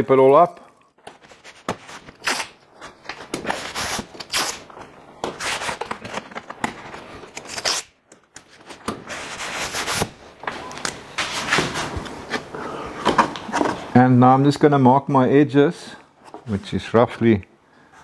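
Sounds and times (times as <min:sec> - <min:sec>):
masking tape ripping: 0:01.4 - 0:02.6, 0:03.2 - 0:04.7, 0:07.3 - 0:08.0
tape smoothed onto paper: 0:09.1 - 0:10.1.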